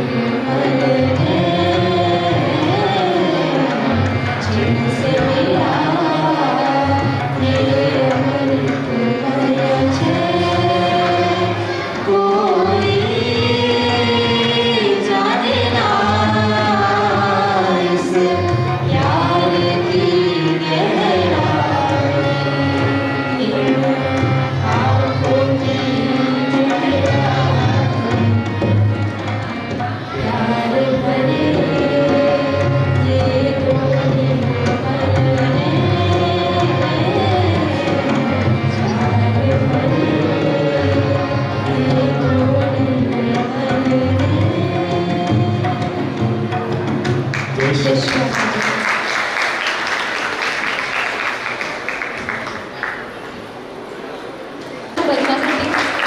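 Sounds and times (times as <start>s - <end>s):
woman and man singing devotional song: 0.0s - 28.7s, 30.1s - 46.4s
tabla: 0.0s - 56.0s.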